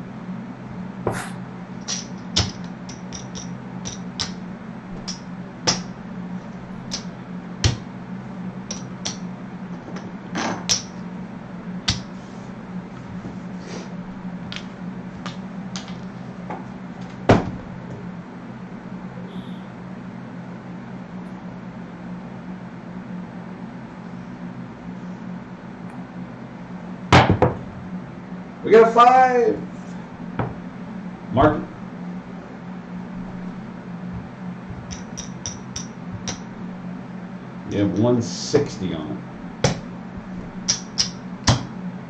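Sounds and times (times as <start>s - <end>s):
steady low hum: 0.0s - 42.0s
clay chips clicking: 1.8s - 7.9s, 8.6s - 10.0s, 34.7s - 36.5s, 40.6s - 41.7s.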